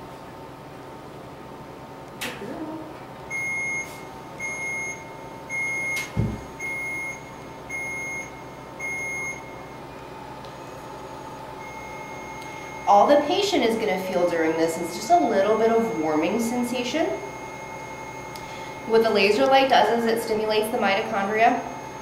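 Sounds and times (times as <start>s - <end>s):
short even beeps: 3.3s - 9.6s.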